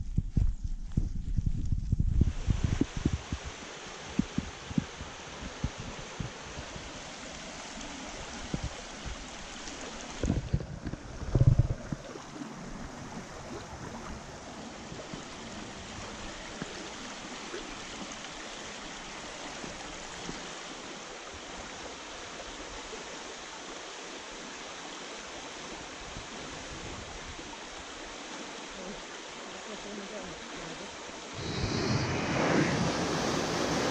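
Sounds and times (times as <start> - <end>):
river rushing over stones: 2.3 - 33.9
low thumps: 10.2 - 12.1.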